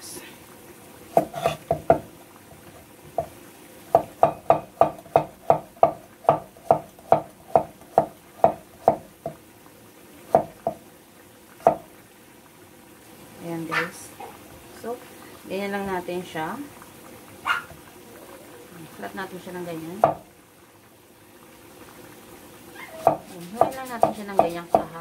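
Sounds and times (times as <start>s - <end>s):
knife chopping on wooden board: 1.2s - 2.1s, 4.0s - 9.1s, 11.6s - 11.8s, 23.0s - 24.9s.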